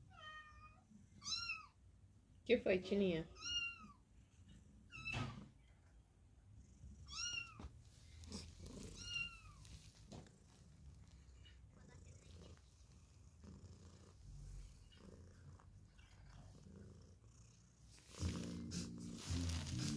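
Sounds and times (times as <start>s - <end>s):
cat meowing: 0.1s - 1.8s, 7.1s - 7.6s, 8.7s - 9.7s
cat purring: 5.7s - 19.9s.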